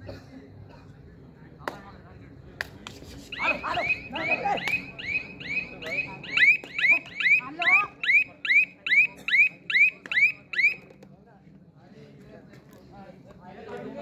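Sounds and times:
high alarm-like chirp: 0:03.4 - 0:10.8.

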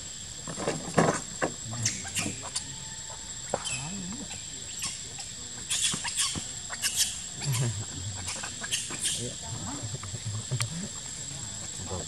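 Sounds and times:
monkeys grunting: 0:01.6 - 0:02.9, 0:03.5 - 0:11.2.

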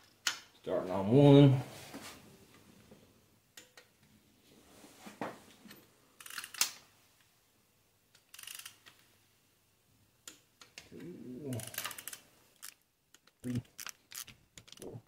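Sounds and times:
torque wrench clicking: 0:06.2 - 0:06.7, 0:08.2 - 0:08.9, 0:11.6 - 0:14.9.

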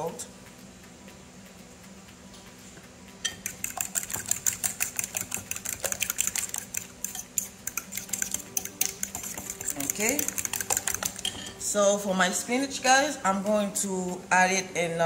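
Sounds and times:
fork beating eggs in bowl: 0:03.3 - 0:11.6.

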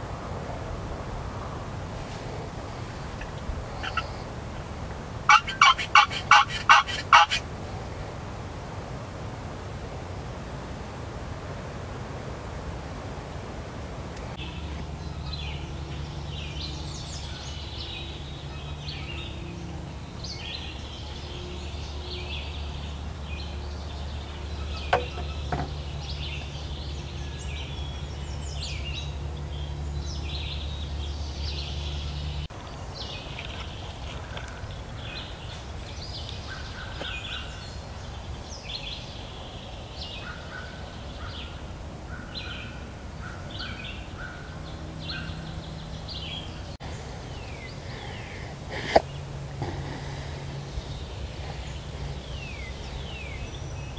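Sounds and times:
songbirds chirping: 0:00.0 - 0:08.2, 0:13.2 - 0:53.9
wild turkey calling: 0:03.2 - 0:04.2, 0:05.3 - 0:07.4.

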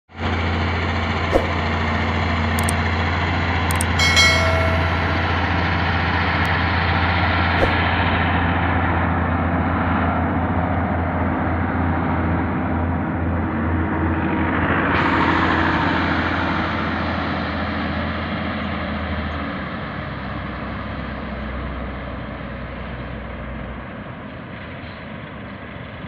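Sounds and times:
sharp clicks: 0:03.7 - 0:04.0
short ringing chime: 0:03.7 - 0:06.1.

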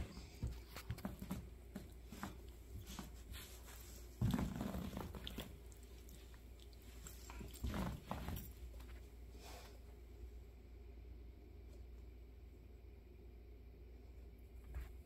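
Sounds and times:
faint scuffling: 0:00.0 - 0:09.8.

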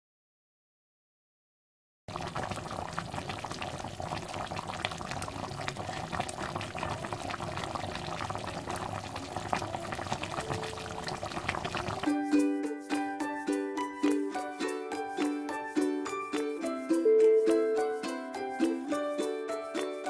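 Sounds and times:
sauce boiling in a pan: 0:02.1 - 0:12.2.

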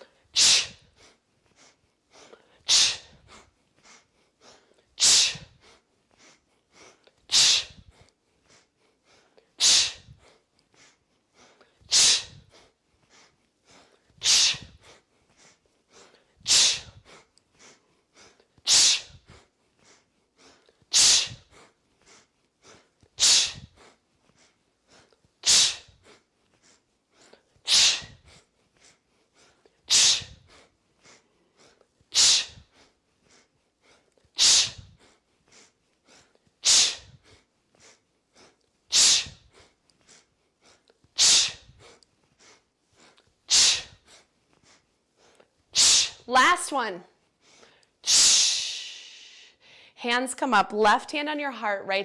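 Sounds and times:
person exhaling sharply: 0:00.4 - 0:00.8, 0:02.7 - 0:03.2, 0:05.0 - 0:05.6, 0:07.3 - 0:07.9, 0:09.6 - 0:10.4, 0:11.9 - 0:12.7, 0:14.2 - 0:14.9, 0:16.4 - 0:17.0, 0:18.7 - 0:19.3, 0:20.9 - 0:21.6, 0:23.2 - 0:23.9, 0:25.4 - 0:26.0, 0:27.7 - 0:28.3, 0:29.9 - 0:30.6, 0:32.1 - 0:32.8, 0:34.4 - 0:35.2, 0:36.6 - 0:37.2, 0:38.9 - 0:39.7, 0:41.2 - 0:41.9, 0:43.5 - 0:44.0, 0:45.8 - 0:46.3, 0:47.6 - 0:50.0.

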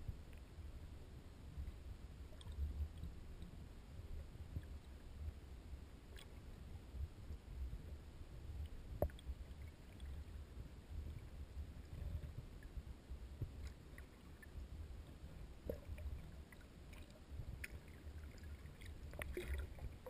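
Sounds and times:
muffled underwater river rumble: 0:00.0 - 0:20.0
faint clicks: 0:13.5 - 0:19.8.

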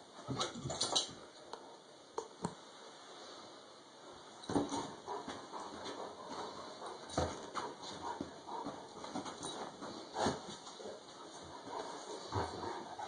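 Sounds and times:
bedding rustling: 0:04.2 - 0:13.0.

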